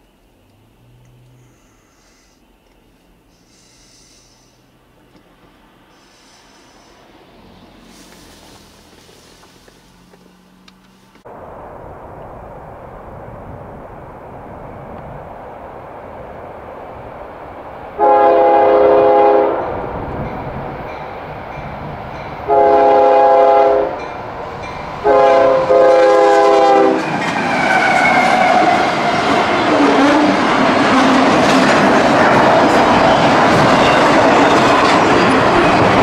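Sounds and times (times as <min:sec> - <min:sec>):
train wheels rumbling: 0:03.1 - 0:36.0
locomotive air horn blasts: 0:18.0 - 0:19.7, 0:22.4 - 0:24.0, 0:25.0 - 0:27.0.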